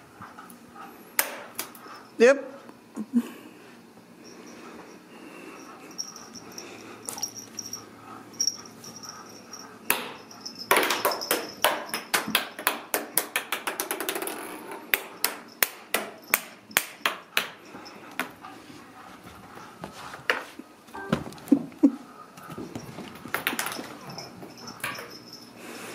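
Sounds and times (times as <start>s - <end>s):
kittens running on wooden stairs: 22.4s - 25.3s.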